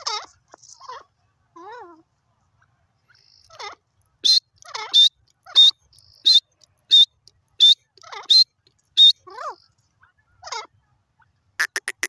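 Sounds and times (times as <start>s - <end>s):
francolin calling: 3.1s - 9.7s, 11.6s - 12.0s.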